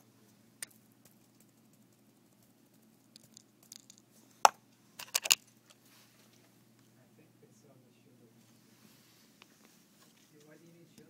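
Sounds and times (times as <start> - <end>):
faint steady hum: 0.0 - 11.0
plastic cap clicking: 5.0 - 5.4.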